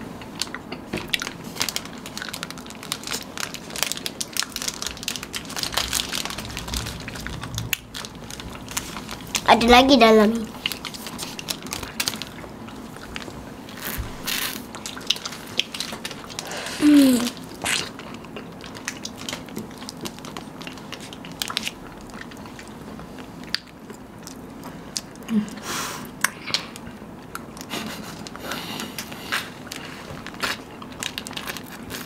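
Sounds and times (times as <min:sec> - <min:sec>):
person humming briefly: 0:16.5 - 0:17.4.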